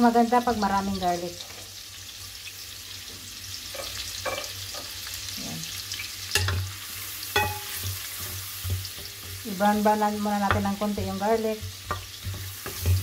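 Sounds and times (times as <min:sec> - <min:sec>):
garlic sizzling in butter: 0:00.0 - 0:13.0
spatula knocking against pan: 0:10.4 - 0:13.0.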